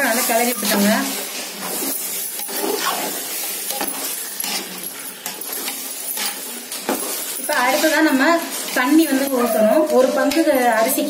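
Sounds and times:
spoon clinking against metal pot: 3.7 - 11.0.

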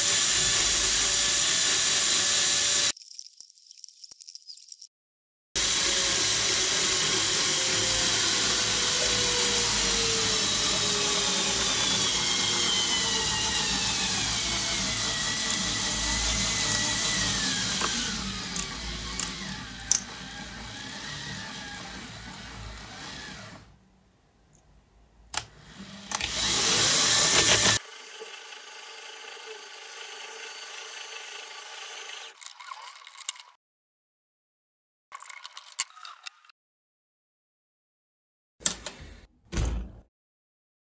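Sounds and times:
small motor and gearbox whining: 5.6 - 23.8, 25.4 - 32.4.

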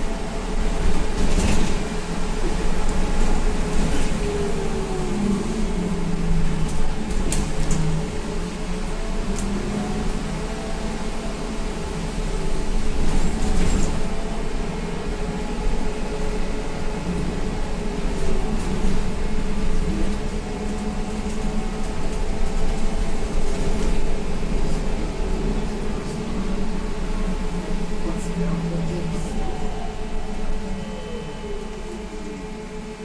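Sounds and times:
road noise: 0.0 - 33.0.

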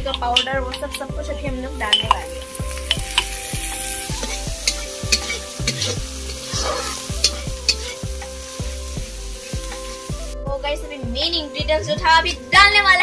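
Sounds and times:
onions sizzling in oil: 1.8 - 10.4
metal spatula scraping wok: 2.4 - 10.0.

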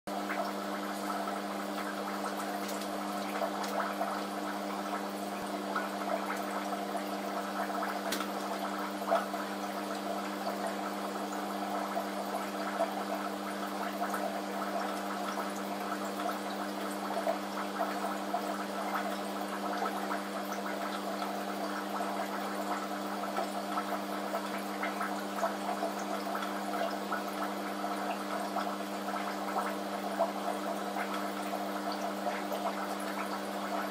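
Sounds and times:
aquarium water bubbling: 0.1 - 33.9
pump humming: 0.1 - 33.9.

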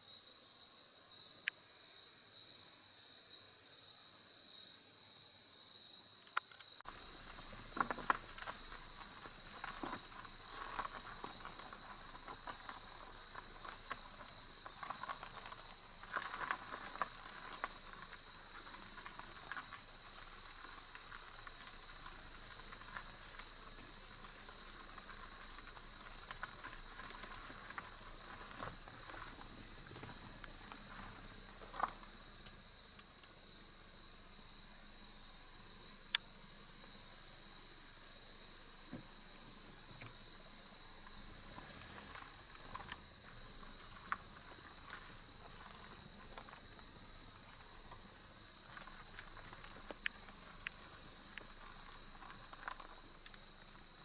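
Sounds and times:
insect chorus: 0.0 - 54.0
crackles and rustles: 6.4 - 54.0.

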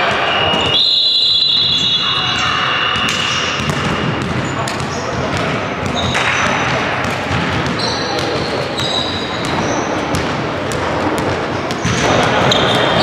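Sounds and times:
basketball bouncing: 2.9 - 13.0
shoe squeaks on court: 5.8 - 6.7, 7.6 - 10.2, 11.6 - 13.0.

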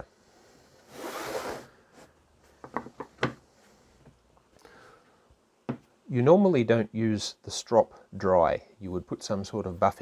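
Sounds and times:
wooden pieces knocking: 2.6 - 3.4.

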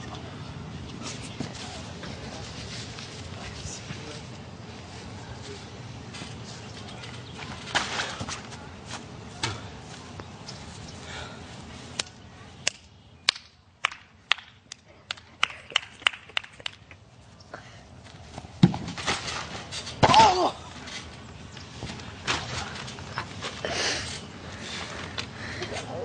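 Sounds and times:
bodies landing on trampoline: 18.4 - 21.0.

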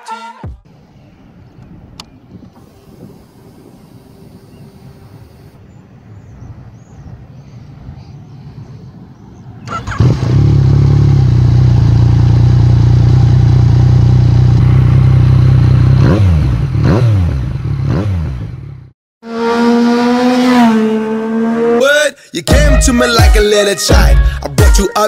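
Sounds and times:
motorcycle engine idling and revving: 8.4 - 21.8.

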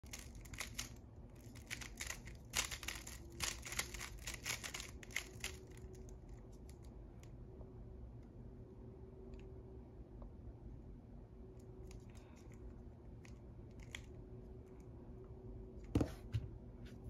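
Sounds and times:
puzzle cube clicking: 1.5 - 5.9.

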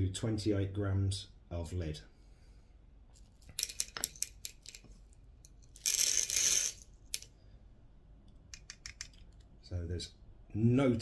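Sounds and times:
steel pellets clicking: 3.4 - 7.3, 8.5 - 9.5.

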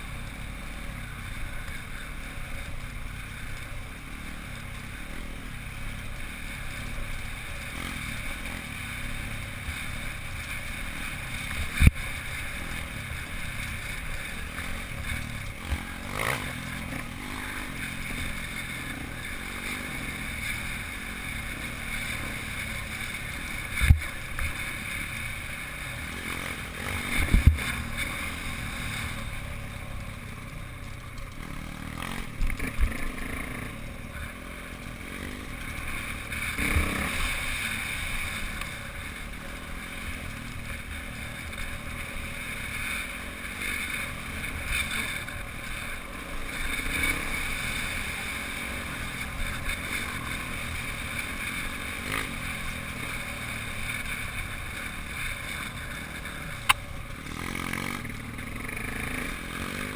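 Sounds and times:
dirt bike engine running: 0.0 - 59.9
wind rushing over microphone: 27.1 - 27.7.

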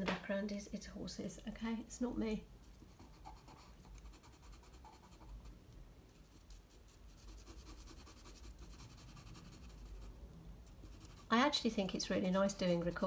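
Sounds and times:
pencil scratching on paper: 6.3 - 10.1, 10.8 - 13.0.

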